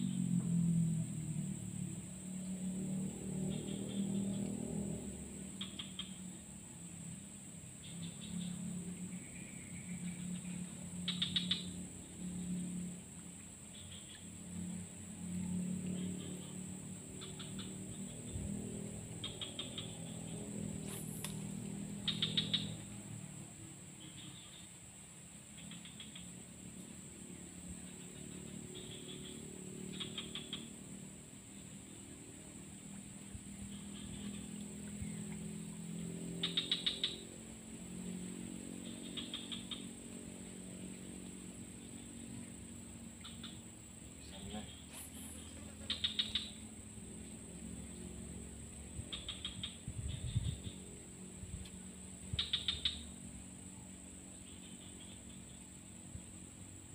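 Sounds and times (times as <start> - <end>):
low drone: 0.0 - 56.9
rapid insect chirps: 0.0 - 56.9
small animal chirping: 11.0 - 11.8, 19.2 - 22.9, 27.9 - 30.7, 36.4 - 37.3, 38.8 - 40.0, 44.2 - 46.7, 49.0 - 50.8, 52.3 - 53.2
sharp clicks: 20.9 - 21.4.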